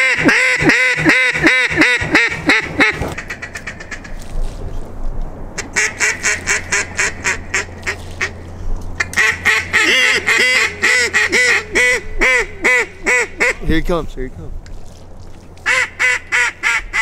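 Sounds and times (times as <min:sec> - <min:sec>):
duck call quacks: 0:00.0 - 0:04.0, 0:05.6 - 0:08.3, 0:09.0 - 0:13.7, 0:15.7 - 0:17.0.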